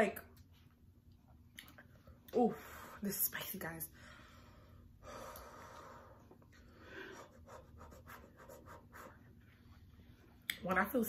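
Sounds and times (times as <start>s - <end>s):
faint breathing: 3.9s - 7.8s.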